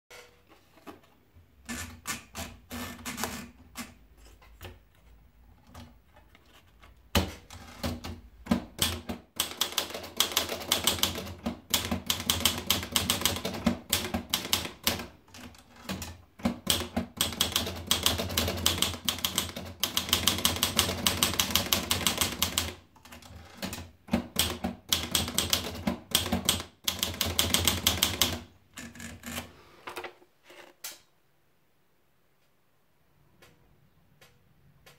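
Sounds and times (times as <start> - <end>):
typewriter keystrokes clacking: 7.1 - 28.5.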